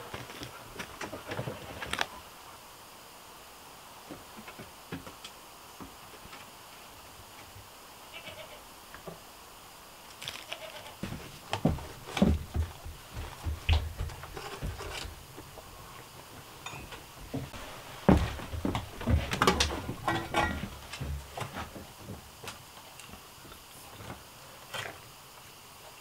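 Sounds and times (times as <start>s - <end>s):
faint animal cry: 8.0s - 8.6s, 10.4s - 11.0s
light knocks and clatter: 11.0s - 15.6s, 16.6s - 22.6s.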